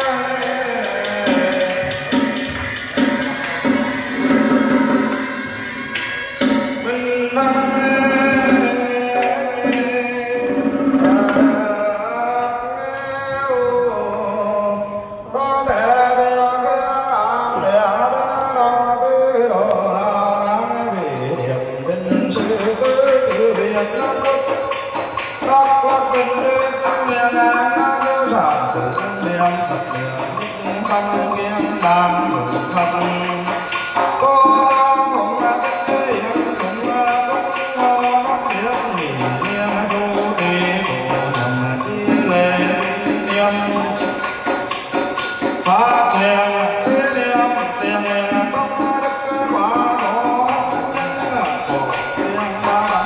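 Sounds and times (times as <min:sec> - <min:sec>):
ornamented sliding melody: 0:00.0 - 0:12.5
drum strokes: 0:00.0 - 0:12.6, 0:21.9 - 0:53.0.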